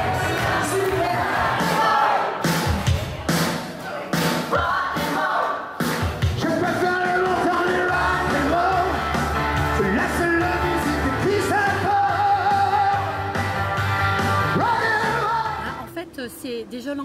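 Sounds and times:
man singing into a microphone: 0:09.8 - 0:13.1.

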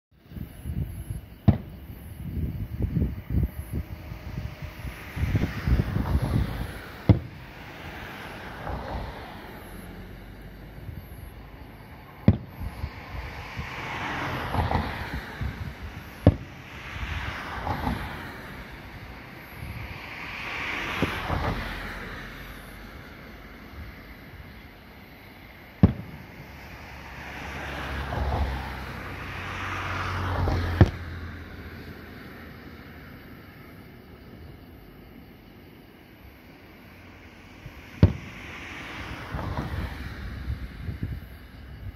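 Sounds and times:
rushing noise: 0:00.2 - 0:41.9
firework shells bursting: 0:06.9 - 0:07.6, 0:25.8 - 0:26.4, 0:38.0 - 0:38.4.

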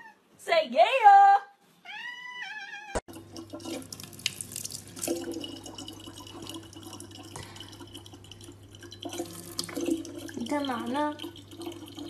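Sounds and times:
cat meowing: 0:01.8 - 0:03.0
tap water running into jug: 0:03.1 - 0:12.0.

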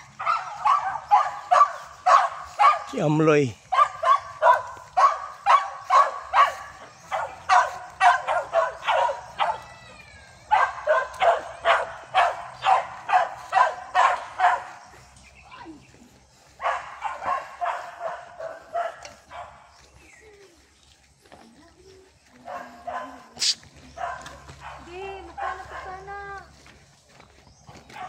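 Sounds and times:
dog barking rapidly: 0:00.1 - 0:09.7, 0:10.5 - 0:15.0, 0:16.6 - 0:19.6, 0:22.5 - 0:26.1.

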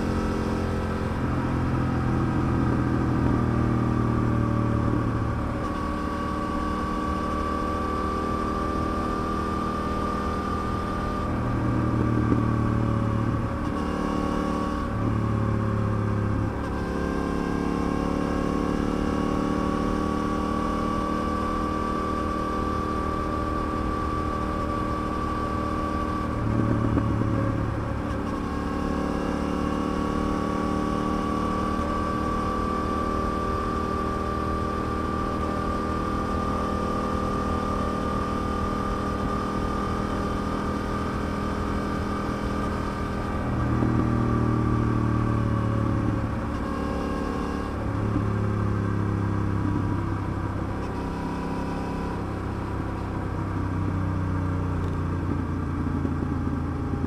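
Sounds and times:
motorcycle engine cruising: 0:00.0 - 0:57.0.

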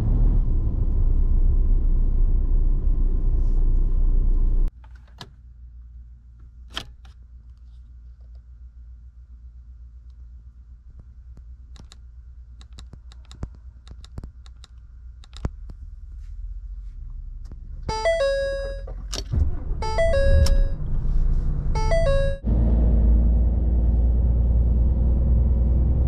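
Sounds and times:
vehicle engine rumble: 0:00.0 - 0:26.0
electronic chime: 0:17.9 - 0:18.9, 0:19.8 - 0:20.8, 0:21.8 - 0:22.4.

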